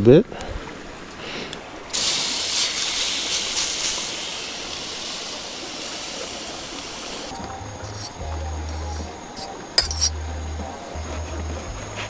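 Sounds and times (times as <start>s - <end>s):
food sizzling in hot pot: 1.9s - 11.4s.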